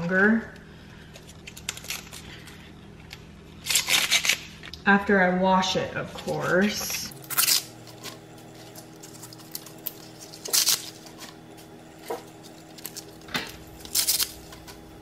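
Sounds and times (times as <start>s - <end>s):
steady low hum: 0.0s - 15.0s
leaves ripping: 3.6s - 4.6s, 7.2s - 11.4s, 12.0s - 14.8s.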